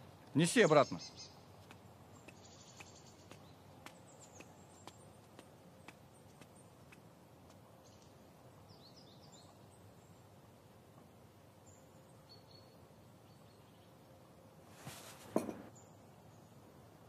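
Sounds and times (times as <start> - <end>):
faint bird chirps: 0.6 - 1.4, 11.6 - 14.0
soft taps: 14.8 - 15.7.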